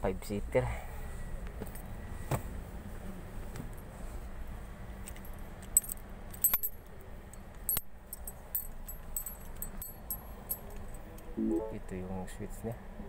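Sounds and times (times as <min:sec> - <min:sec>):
light metallic jingling: 0:07.7 - 0:11.0.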